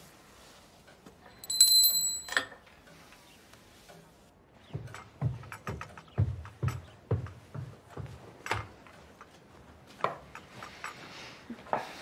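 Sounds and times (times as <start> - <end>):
small bell ringing: 1.3 - 2.5
heavy footsteps: 4.5 - 11.1.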